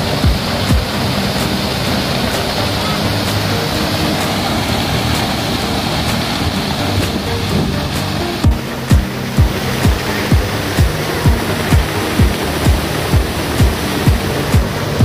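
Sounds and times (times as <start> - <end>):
water falling onto rocks: 8.9 - 15.0.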